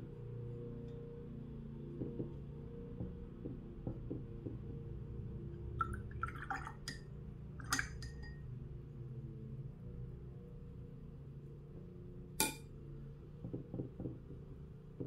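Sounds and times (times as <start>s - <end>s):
small water sounds: 5.7s - 8.4s
brush clinking on ceramic palette: 7.6s - 8.4s.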